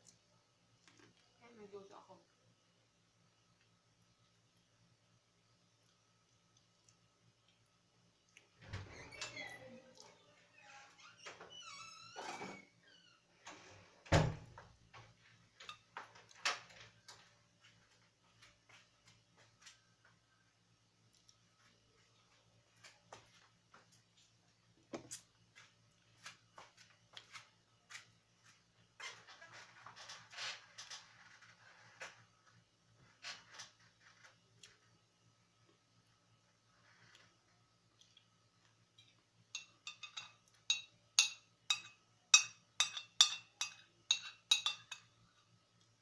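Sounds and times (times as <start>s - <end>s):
faint steady hum: 0.0s - 46.0s
metal spoon clinking on plate: 39.0s - 45.1s.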